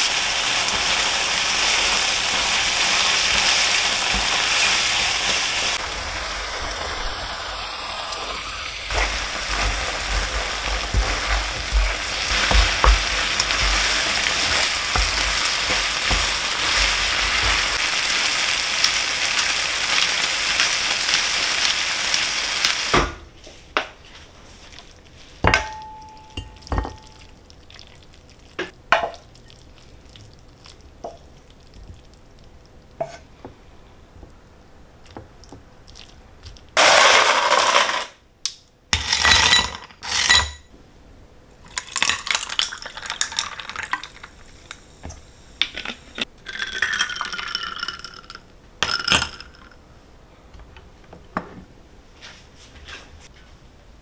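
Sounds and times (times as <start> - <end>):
food sizzling in a frying pan: 0.0 - 23.1.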